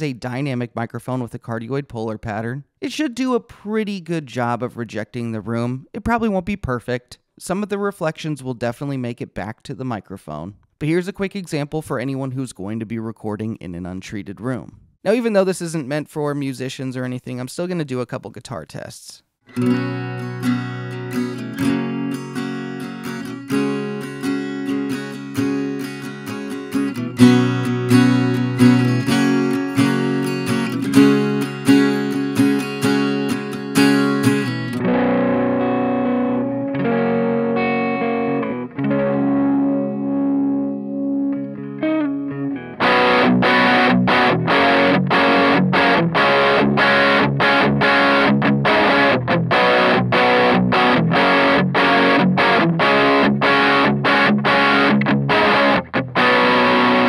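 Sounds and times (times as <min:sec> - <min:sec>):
acoustic guitar strumming chords: 0:19.5 - 0:57.0
distorted electric guitar chords: 0:19.5 - 0:57.0.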